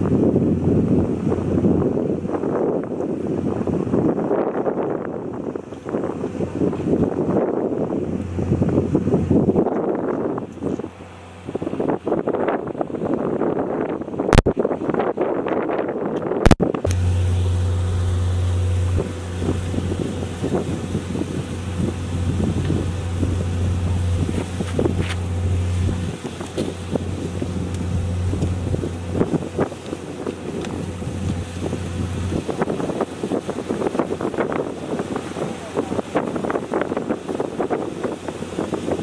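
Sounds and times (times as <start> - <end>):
wind buffeting microphone: 0.0 - 39.0
engine idling: 16.8 - 32.7.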